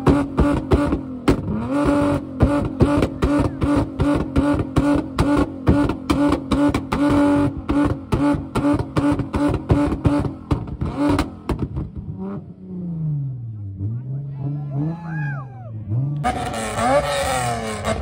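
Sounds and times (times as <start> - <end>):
exhaust backfiring pops and bangs: 0.0 - 12.5
car engine revving on limiter: 0.0 - 15.2, 15.8 - 18.0.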